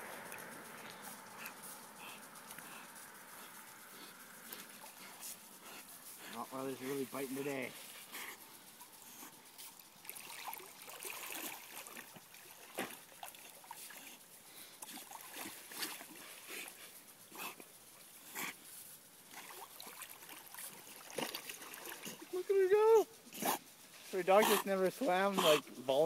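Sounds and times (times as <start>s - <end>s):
dog splashing through water: 9.7s - 16.8s, 19.3s - 22.4s.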